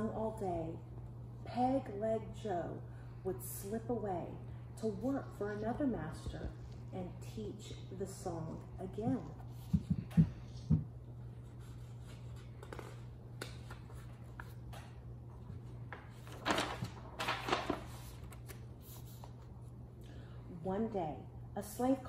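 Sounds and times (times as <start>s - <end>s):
steady low hum: 0.0s - 22.0s
paper rustling: 11.5s - 19.5s.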